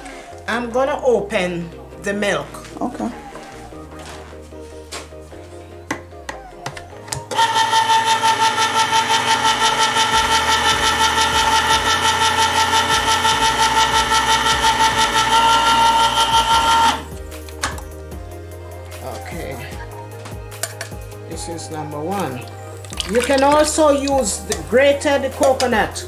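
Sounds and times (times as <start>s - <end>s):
electric can opener whining: 7.2s - 17.2s, 22.2s - 24.7s.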